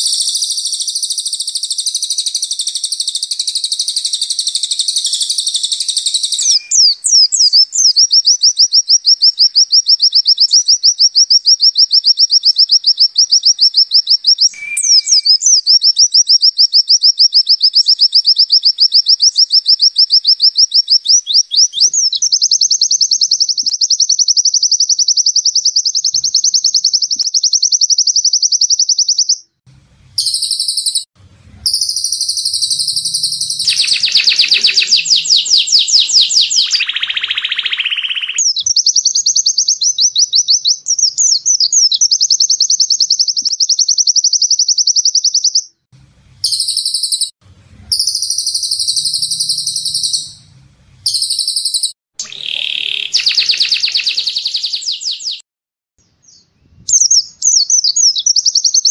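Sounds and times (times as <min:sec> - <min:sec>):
songbirds singing fast trills: 0:00.0 - 0:29.6, 0:30.2 - 0:55.4, 0:56.0 - 0:58.9
low buzzy birdsong: 0:29.8 - 0:42.3, 0:46.1 - 0:55.4.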